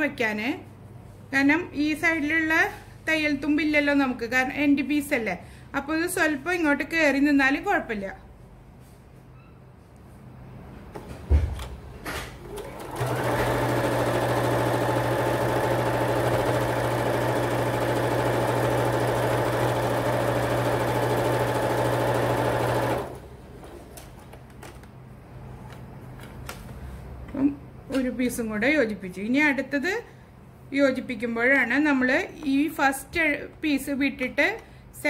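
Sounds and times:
sewing machine stitching: 0:12.4 - 0:23.2.

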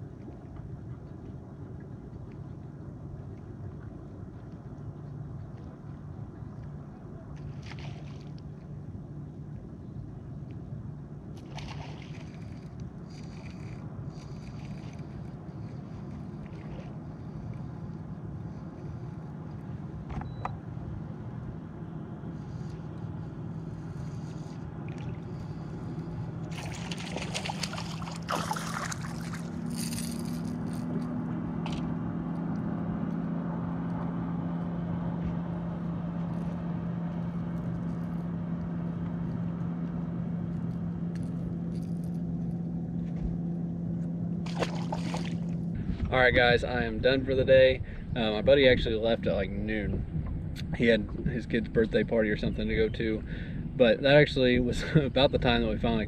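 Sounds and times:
water splashing and scraping: 0:00.0 - 0:08.7, 0:11.3 - 0:20.1, 0:22.2 - 0:34.2, 0:35.1 - 0:47.2
trolling motor humming: 0:00.0 - 0:56.0
higher motor hum: 0:00.1 - 0:47.0.

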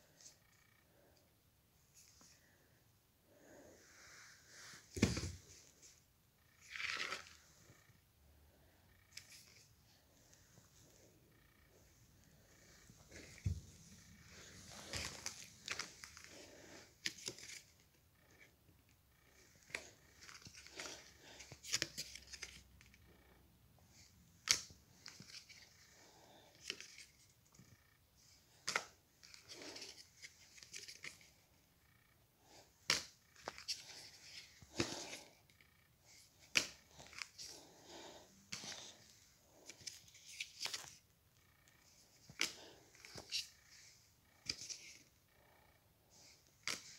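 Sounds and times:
trading cards being flipped: 0:19.7 - 0:22.7, 0:24.4 - 0:25.6, 0:32.9 - 0:35.3, 0:36.4 - 0:37.7, 0:39.6 - 0:41.0, 0:42.2 - 0:43.7, 0:44.4 - 0:45.0, 0:46.6 - 0:46.9.

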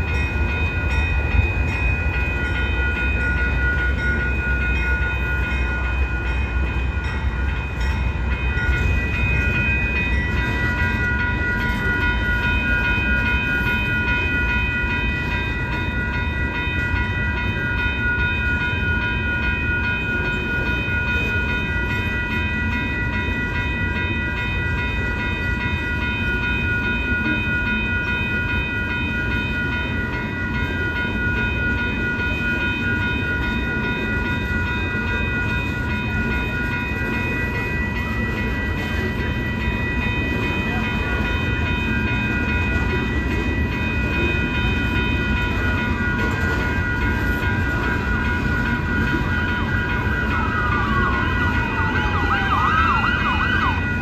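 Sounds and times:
crossing warning bells ringing: 0:00.0 - 0:54.0
train cars rumbling over crossing: 0:00.0 - 0:54.0
siren wailing: 0:50.0 - 0:54.0.

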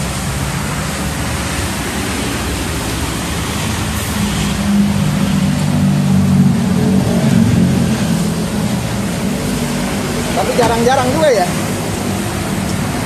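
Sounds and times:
car wash machinery rushing: 0:00.0 - 0:13.0.

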